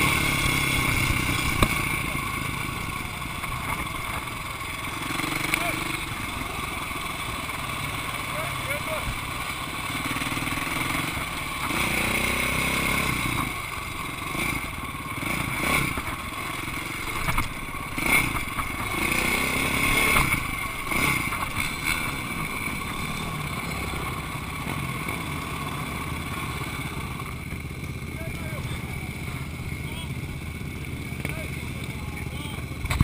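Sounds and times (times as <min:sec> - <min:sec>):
motorcycle engine revving: 0:00.0 - 0:33.0
bike knocking and rattling: 0:01.1 - 0:06.6, 0:15.2 - 0:25.4, 0:30.6 - 0:33.0.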